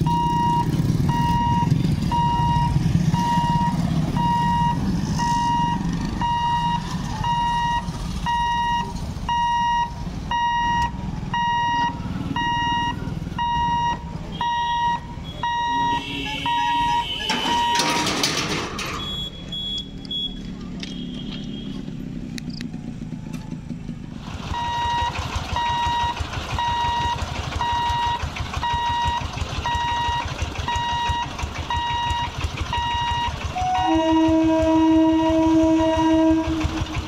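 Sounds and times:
motorbike engines: 0.0 - 37.0
high electronic warning beeps: 0.1 - 18.0, 19.0 - 21.1, 24.6 - 33.4.

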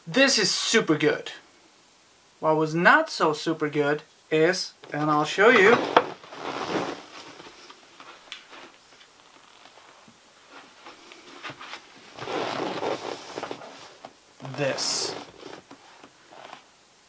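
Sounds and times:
handling rustle: 4.9 - 16.7.

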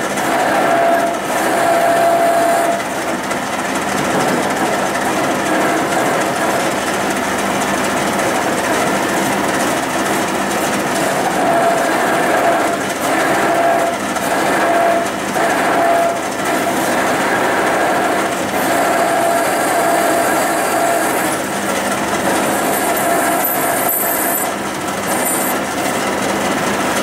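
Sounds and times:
metal lathe grinding rattle: 0.0 - 27.0
high squeal of cutting tool: 0.3 - 3.0, 11.1 - 21.5, 22.3 - 25.7.

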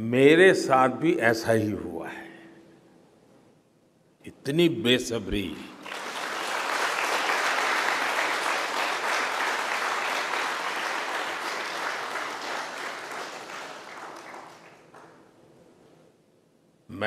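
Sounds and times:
audience applauding: 5.8 - 15.4.

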